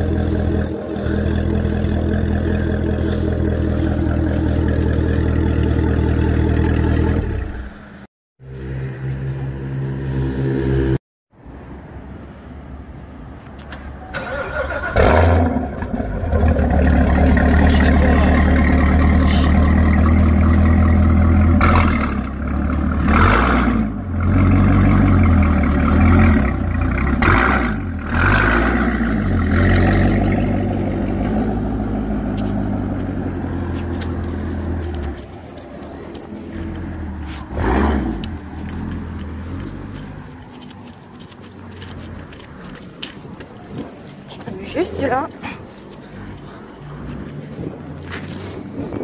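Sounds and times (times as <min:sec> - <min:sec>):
car engine starting and revving: 0:14.2 - 0:42.5.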